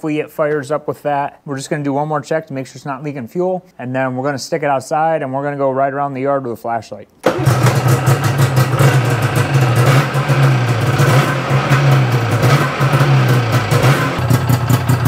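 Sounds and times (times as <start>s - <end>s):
two-stroke snowmobile engine running: 7.3s - 15.0s.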